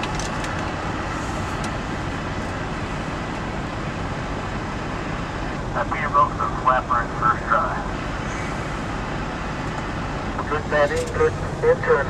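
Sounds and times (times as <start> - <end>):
diesel truck engines idling: 0.0 - 12.0.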